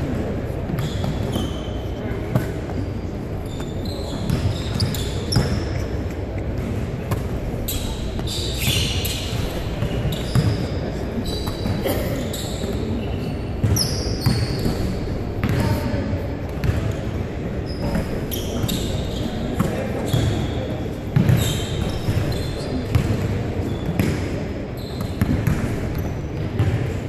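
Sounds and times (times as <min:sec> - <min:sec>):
sneaker squeaks: 0:00.2 - 0:27.0
basketballs bouncing on hardwood: 0:22.9 - 0:23.3, 0:26.6 - 0:27.0.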